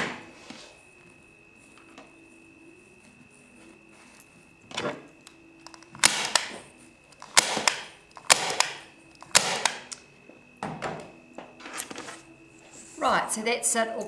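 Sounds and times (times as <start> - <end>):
staple gun snapping: 7.3 - 10.0.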